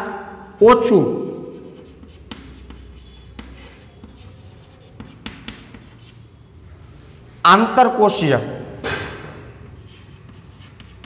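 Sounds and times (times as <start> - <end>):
chalk writing on chalkboard: 1.2 - 6.4, 9.5 - 11.0.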